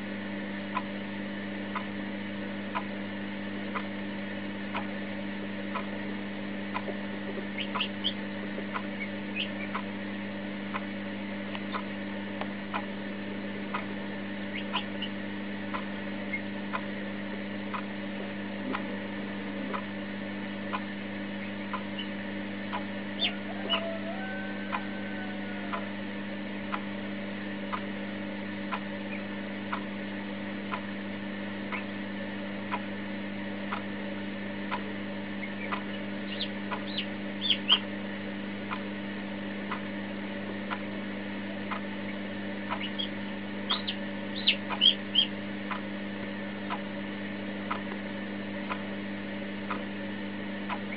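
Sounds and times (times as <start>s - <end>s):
electrical hum: 0.0s - 50.9s
chick peeping: 1.7s - 2.0s, 6.7s - 9.9s, 11.5s - 12.9s, 13.7s - 17.0s, 20.6s - 26.0s, 31.6s - 32.0s, 34.7s - 38.0s, 39.6s - 45.9s
even ticking: 6.7s - 10.0s, 34.7s - 37.9s, 41.7s - 45.9s.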